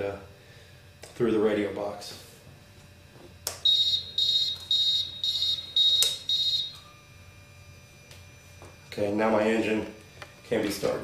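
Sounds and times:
high electronic buzzer beeps: 3.5s - 11.0s.

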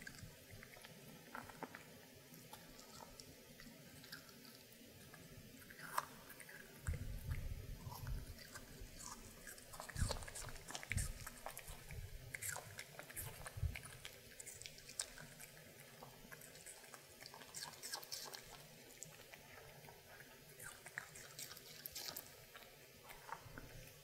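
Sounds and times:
dog crunching apple: 0.0s - 23.8s.

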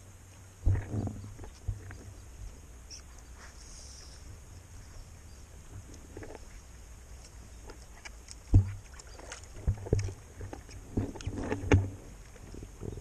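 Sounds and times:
paddle knocking against kayak: 8.3s - 12.2s.

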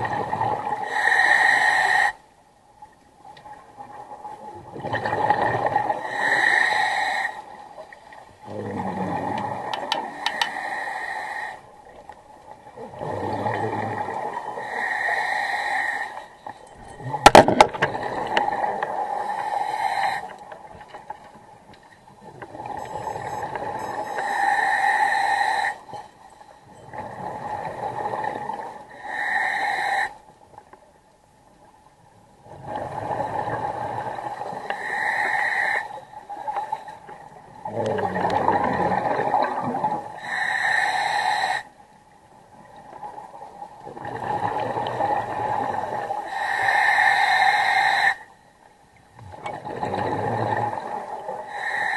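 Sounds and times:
diver breathing through regulator: 5.9s - 7.5s, 10.1s - 11.6s, 13.0s - 16.8s, 17.8s - 20.5s, 22.6s - 26.7s, 28.8s - 30.2s, 34.6s - 37.0s, 40.2s - 41.7s, 46.2s - 48.3s, 50.2s - 51.9s.

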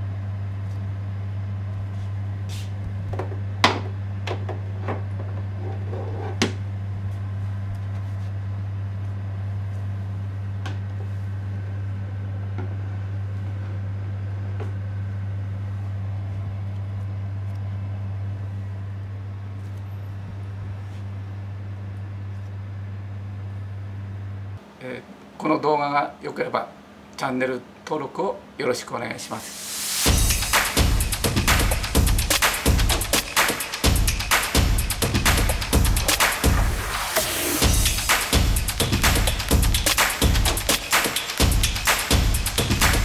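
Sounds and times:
low hum: 33.9s - 40.8s.

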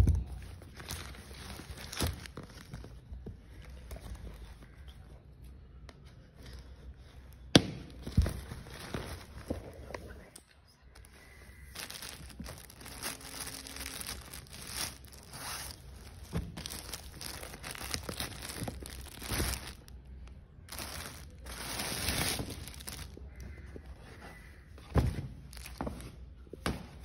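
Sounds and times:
plastic wrapping crinkling: 0.2s - 4.1s, 7.9s - 9.6s, 11.0s - 23.5s, 25.5s - 26.0s.

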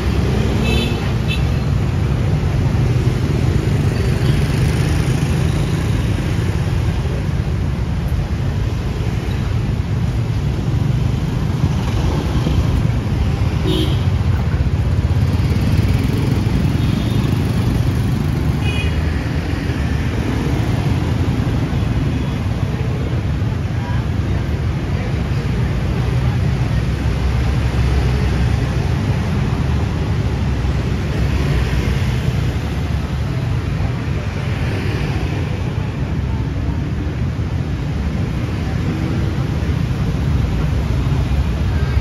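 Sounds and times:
motorbike and car engines: 0.0s - 42.0s.

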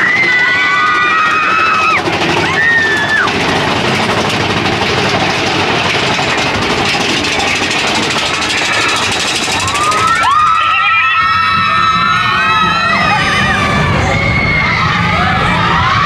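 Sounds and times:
roller coaster wheels rumbling: 0.0s - 16.0s.

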